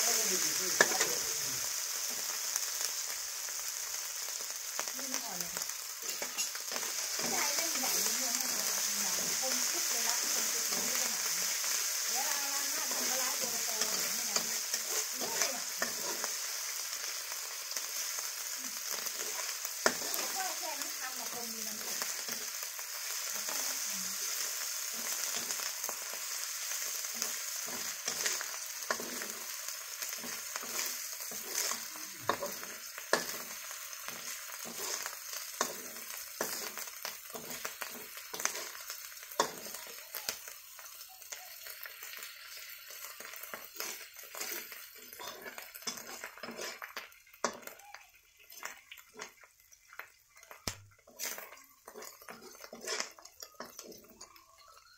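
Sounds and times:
curry paste sizzling in oil: 0.0s - 54.9s
metal spatula scraping a wok: 0.1s - 1.3s, 5.9s - 39.9s, 42.5s - 47.7s, 51.0s - 54.2s.

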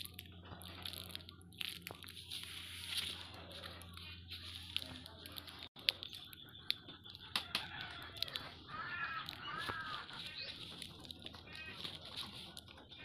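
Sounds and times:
bird calling: 6.0s - 10.8s.

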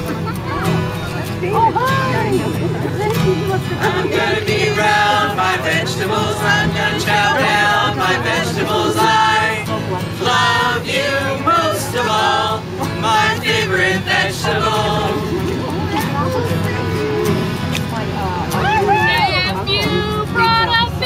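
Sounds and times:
accordion: 0.0s - 21.0s
strummed acoustic guitar: 0.0s - 21.0s
group of voices singing: 2.2s - 16.5s.

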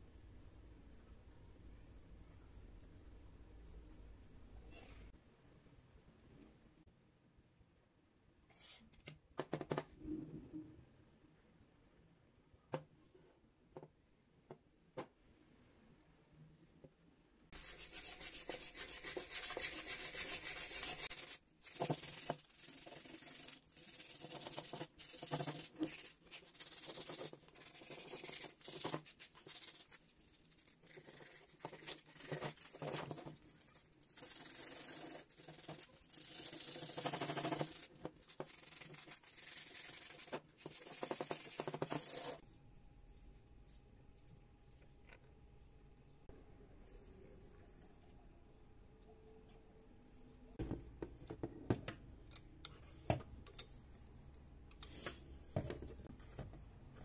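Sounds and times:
sandpaper rubbing: 17.6s - 33.2s, 34.1s - 42.4s.

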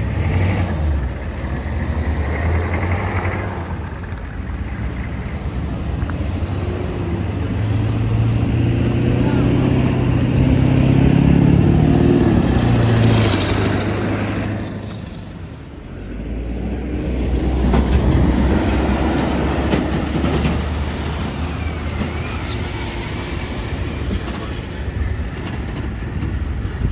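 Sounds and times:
freight train passing: 0.0s - 26.9s.

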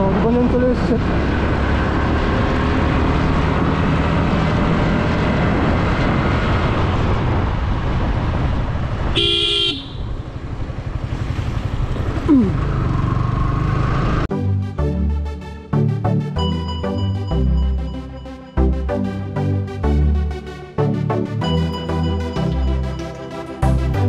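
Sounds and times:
motorcycle engine and wind noise: 0.0s - 14.3s
vehicle horn honk: 9.1s - 10.1s.

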